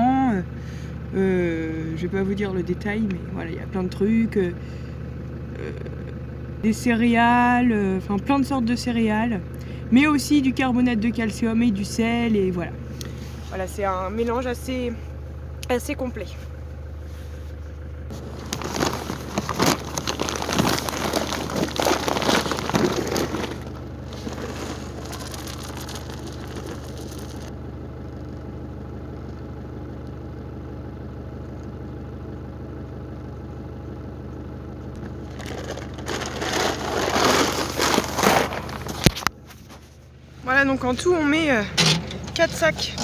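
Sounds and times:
car engine idling: 0.0s - 43.0s
feed sacks rustling: 18.1s - 27.5s, 35.0s - 39.8s.

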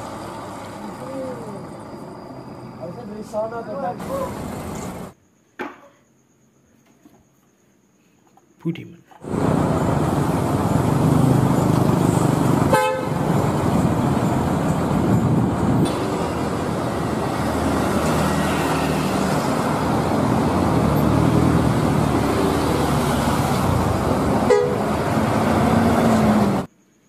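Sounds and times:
coach engine running: 0.0s - 5.2s, 9.2s - 26.7s
street traffic noise: 0.0s - 5.2s, 9.1s - 26.8s
horn toot: 12.7s - 13.2s, 24.5s - 24.9s.

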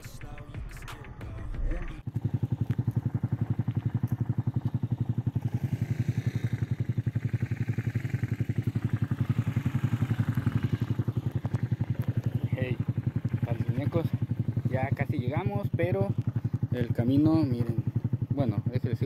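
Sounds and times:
motorcycle engine idling: 0.0s - 19.0s.

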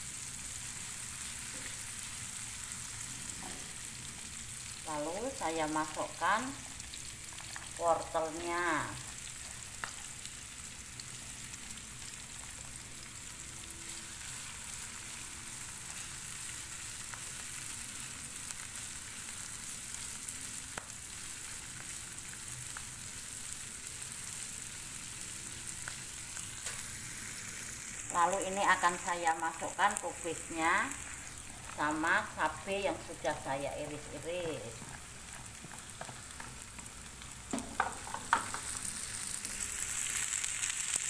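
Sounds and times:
vegetables sizzling in oil: 0.0s - 41.0s
spatula tapping pan: 34.8s - 36.9s, 37.5s - 38.7s.

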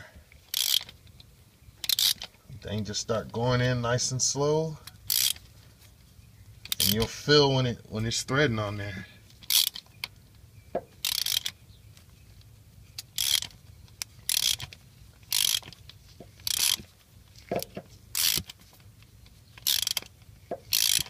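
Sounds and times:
socket ratchet clicking: 0.5s - 1.0s, 1.8s - 2.3s, 4.8s - 5.4s, 6.6s - 7.1s, 9.4s - 10.1s, 11.0s - 11.6s, 13.0s - 15.8s, 16.4s - 16.9s, 17.5s - 18.6s, 19.6s - 21.0s.

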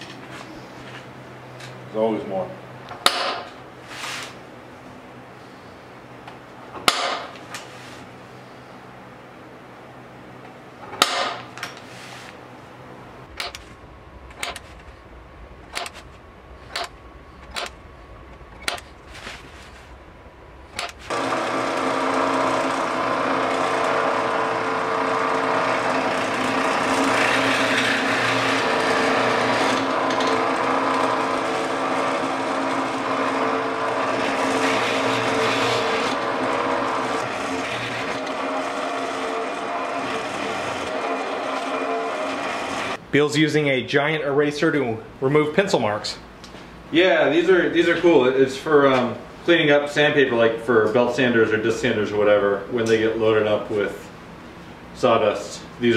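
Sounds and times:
drill press drilling: 20.8s - 43.0s.

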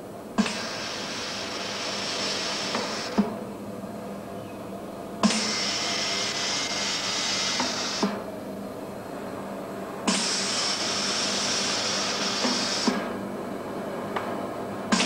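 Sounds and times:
machine hissing in puffs of air: 0.0s - 3.5s, 5.2s - 8.3s, 10.0s - 13.4s
steady low hum: 0.0s - 15.0s.

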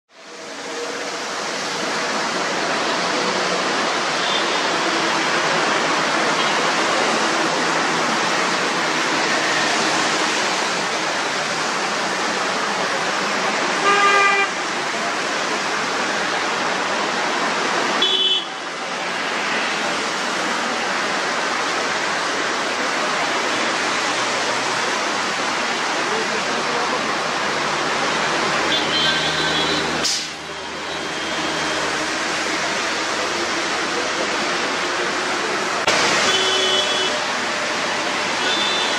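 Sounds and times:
heavy traffic on wet road: 0.1s - 38.9s
vehicle horn: 13.8s - 14.6s, 36.2s - 37.2s, 38.4s - 38.9s.

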